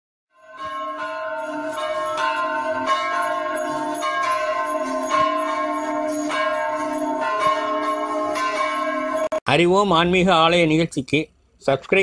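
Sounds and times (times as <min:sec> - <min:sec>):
bells ringing: 0:00.3 - 0:09.4.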